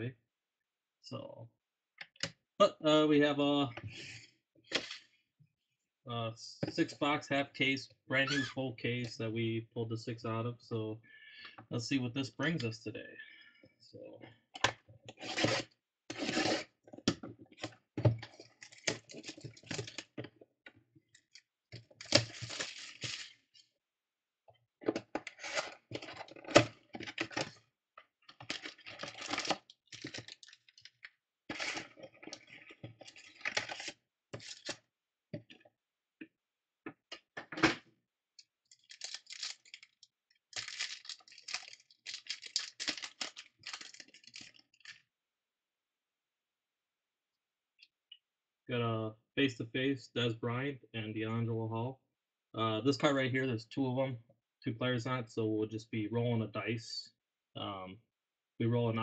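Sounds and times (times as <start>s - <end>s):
cardboard rustling: 22.0s - 23.4s, 28.5s - 30.8s, 31.5s - 34.8s
packs tearing: 22.0s - 23.4s, 28.5s - 30.7s, 31.5s - 34.7s, 38.7s - 45.0s.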